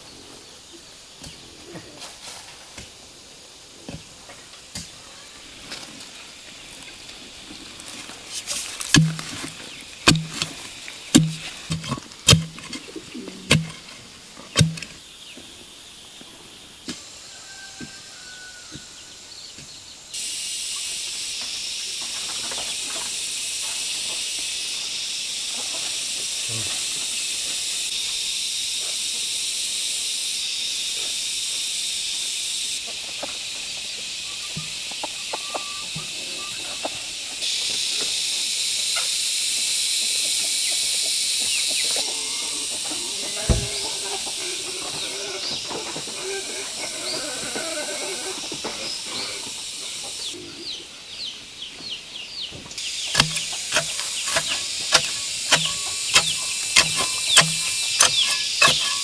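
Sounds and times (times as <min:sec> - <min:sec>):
insects hissing: 0:00.0 - 0:59.0
blade chopping into soil: 0:08.4 - 0:13.9, 0:14.5 - 0:15.0, 0:53.1 - 0:59.0.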